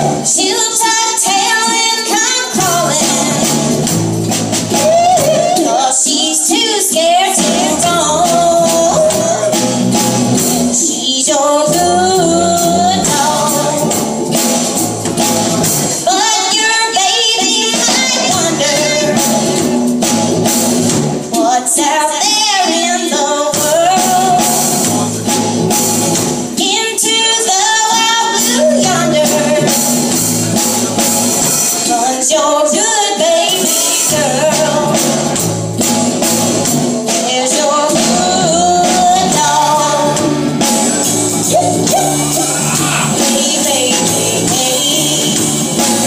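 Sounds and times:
woman singing: 0.0 - 3.9, 4.6 - 19.8, 21.2 - 25.0, 26.4 - 30.1, 31.7 - 35.5, 36.8 - 46.0
drum kit with cymbals: 0.0 - 46.0
electric guitars: 23.6 - 46.0.

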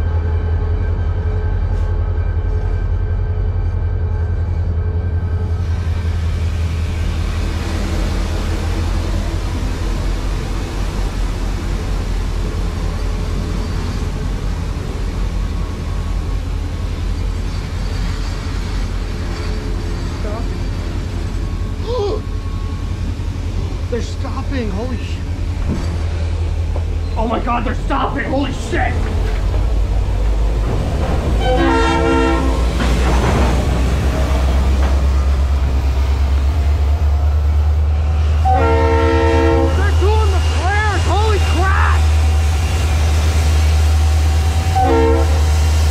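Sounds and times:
freight train wheels rumbling on rails: 0.0 - 45.9
locomotive horn blasts: 31.4 - 32.8, 38.4 - 39.9, 44.7 - 45.5.

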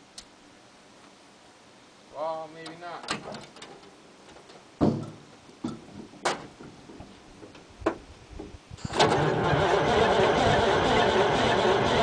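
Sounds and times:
truck door slamming: 4.8 - 5.2
diesel engine cranking: 8.8 - 12.0.

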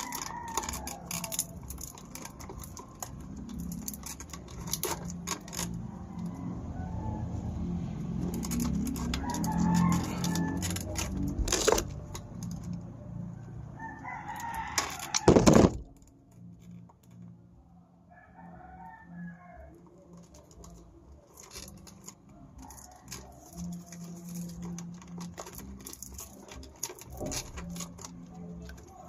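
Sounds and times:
wire and pliers clicking: 0.0 - 6.0, 8.2 - 12.9, 20.1 - 29.0
rooster crowing: 5.9 - 11.2, 13.6 - 15.4, 18.1 - 19.8, 22.3 - 24.8.

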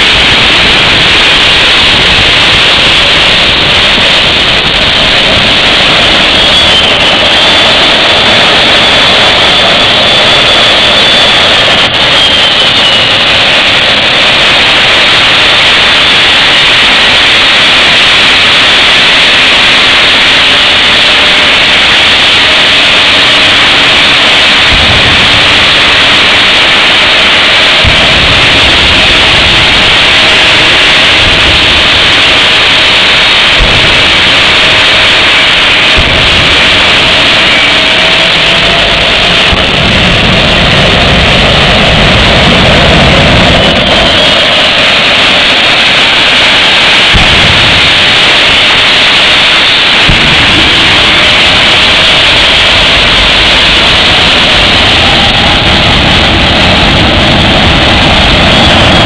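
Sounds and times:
deep rumbles: 0.0 - 59.0
jet turbine engine running: 0.0 - 59.0.

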